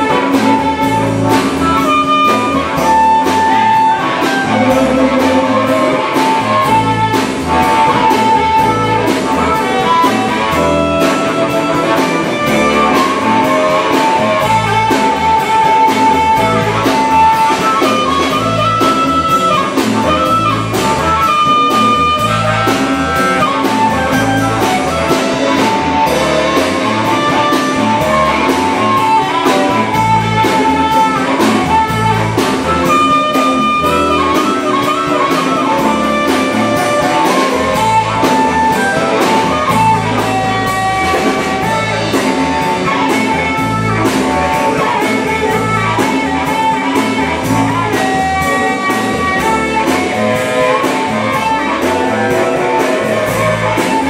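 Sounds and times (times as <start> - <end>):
amplified harmonica long notes: 0.0 - 54.0
drum kit: 0.0 - 54.0
electric bass: 0.0 - 54.0
electric guitar: 0.0 - 54.0.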